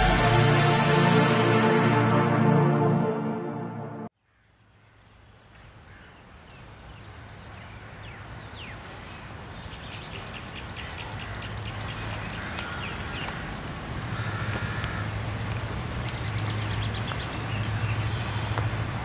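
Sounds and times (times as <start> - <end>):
low rumble: 0.0 - 4.1.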